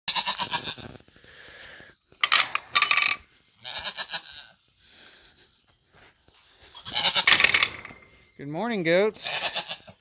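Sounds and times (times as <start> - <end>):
goats bleating: 0.1 - 0.8, 3.6 - 4.7, 6.7 - 7.4, 9.2 - 10.0.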